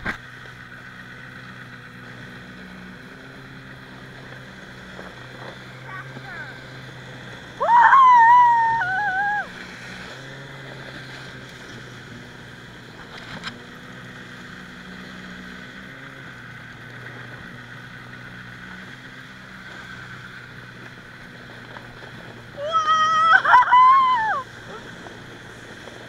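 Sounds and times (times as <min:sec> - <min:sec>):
snowmobile engine droning: 0:00.0 - 0:26.0
person squealing: 0:07.6 - 0:09.5, 0:22.6 - 0:24.8.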